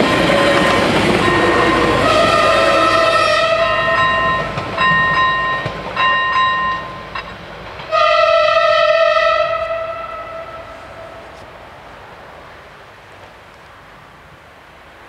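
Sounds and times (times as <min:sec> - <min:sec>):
two-tone train horn blasts: 0:00.0 - 0:07.0, 0:07.9 - 0:11.5
train running rumble: 0:00.0 - 0:15.0.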